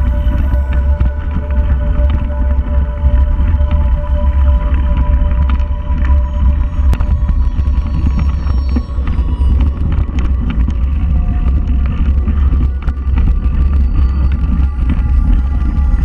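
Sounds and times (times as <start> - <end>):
clicks and rattles over leaves: 0.0 - 16.0
mountain bike rumbling on dirt trail: 6.7 - 16.0.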